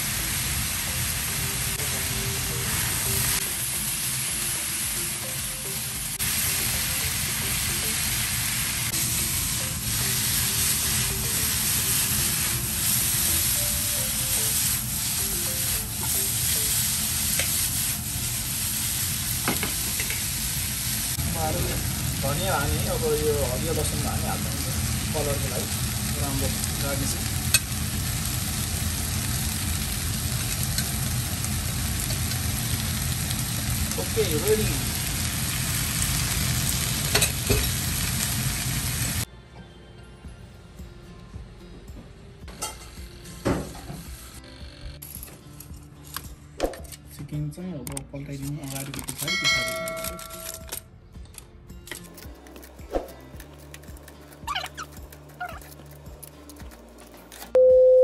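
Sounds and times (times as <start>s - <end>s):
noodles sizzling in a frying pan: 0.0s - 39.3s.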